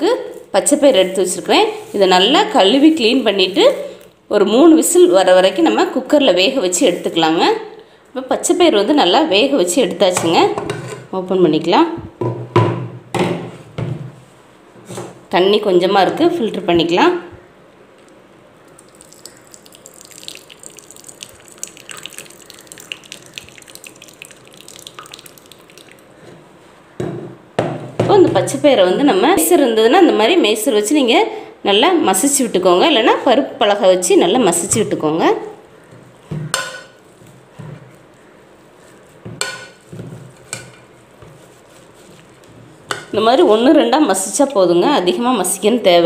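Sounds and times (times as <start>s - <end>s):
soft squishing: 18.0s - 27.0s, 35.6s - 43.2s
water drips and splashes: 18.7s - 26.2s
water trickling into a bowl: 18.7s - 26.2s.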